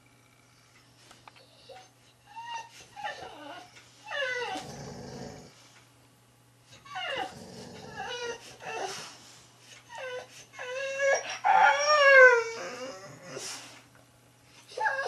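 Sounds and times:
dog whining: 1.4s - 5.5s, 6.7s - 13.8s, 14.6s - 15.0s
dog growling low: 4.3s - 5.6s, 7.0s - 8.3s.

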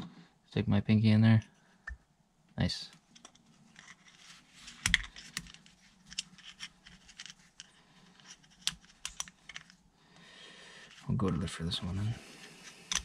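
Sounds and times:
metal pick clicking and scratching: 3.1s - 9.8s, 12.5s - 13.0s.

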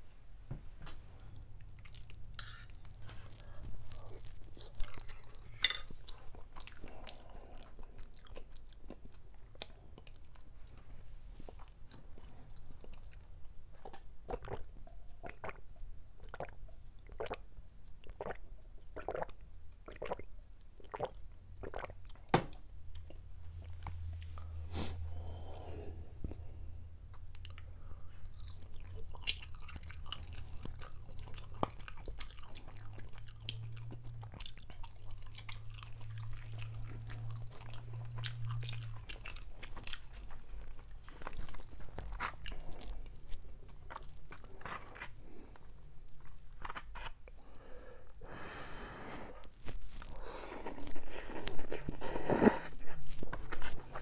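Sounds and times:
person chewing with mouth clicks: 1.2s - 10.5s, 26.2s - 47.6s, 49.4s - 54.0s.

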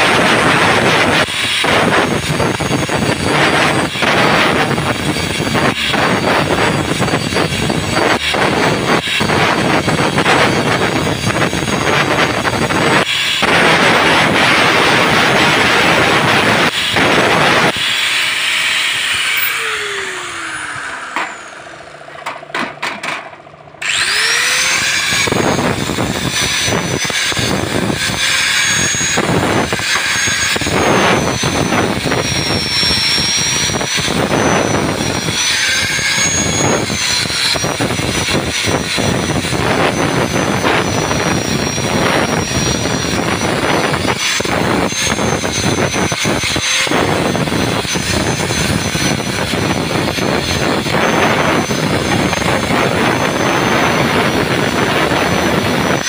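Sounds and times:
angle grinder whining: 0.0s - 56.0s
abrasive rasping on metal: 23.8s - 56.0s.

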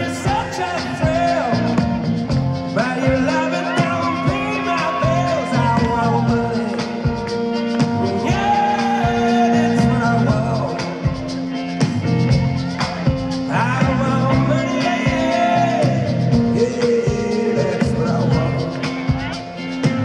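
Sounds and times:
acoustic and electric guitars: 0.0s - 20.0s
bass guitar: 0.0s - 20.0s
drums with a steady beat: 0.0s - 20.0s
man singing: 0.0s - 20.0s.

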